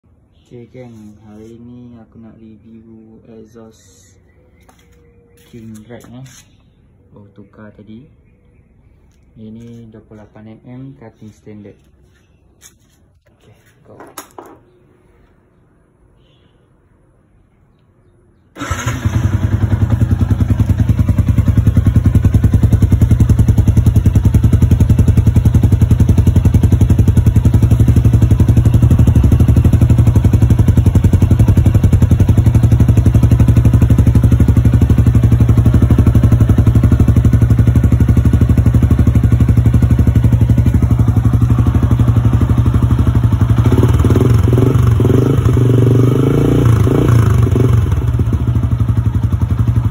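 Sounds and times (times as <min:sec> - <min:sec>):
motorcycle engine idling: 0:18.6 - 0:49.9.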